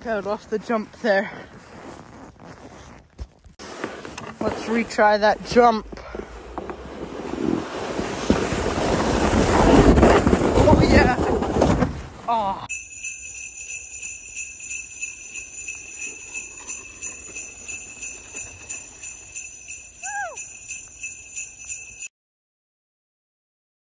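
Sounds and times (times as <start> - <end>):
sleigh bells jingling: 12.3 - 22.1.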